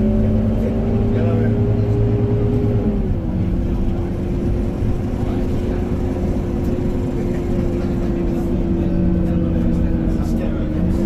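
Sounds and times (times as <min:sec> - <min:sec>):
bus engine rumble: 0:00.0 - 0:11.0
drivetrain whine: 0:00.0 - 0:11.0.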